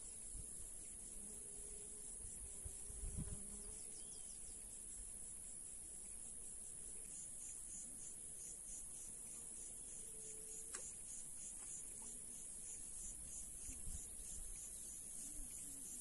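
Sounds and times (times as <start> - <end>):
insects chirring: 0.0 - 16.0
wind rumbling on microphone: 2.6 - 3.5.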